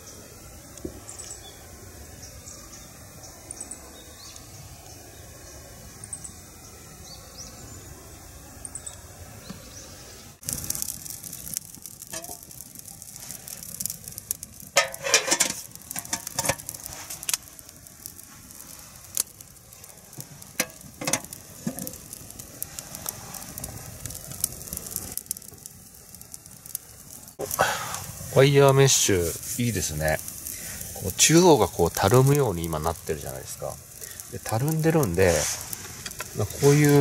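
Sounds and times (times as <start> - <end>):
campfire crackling and popping: 0.0 - 37.0
faint high chirps: 1.0 - 10.4.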